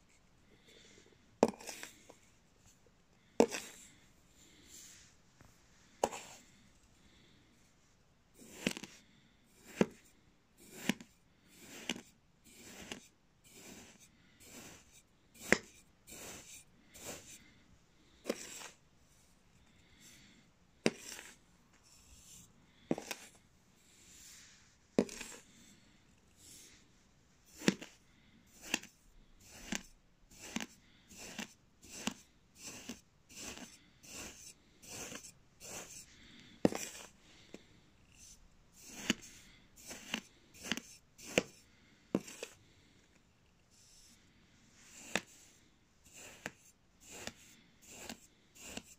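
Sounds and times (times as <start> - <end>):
knife cutting through sand: 3.4 - 3.8, 10.6 - 17.4, 18.2 - 18.8, 20.8 - 21.4, 22.2 - 23.4, 25.0 - 25.4, 27.5 - 37.2, 38.2 - 41.6, 42.2 - 42.6, 44.9 - 45.4, 46.1 - 48.9.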